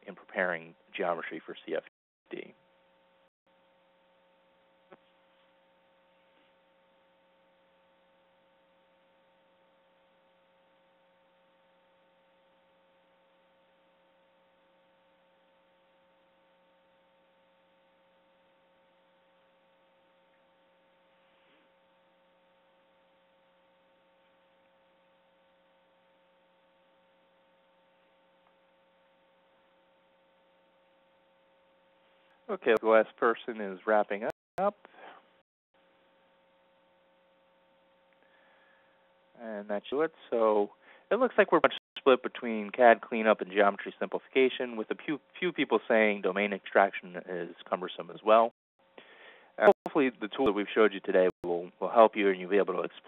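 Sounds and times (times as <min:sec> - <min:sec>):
faint electrical hum: 0:00.0 - 0:53.0.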